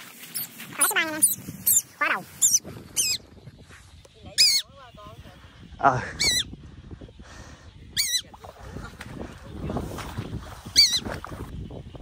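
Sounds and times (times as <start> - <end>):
bird calling shrilly: 0.3 - 3.3, 4.4 - 4.7, 6.2 - 6.5, 7.9 - 8.3, 10.7 - 11.2.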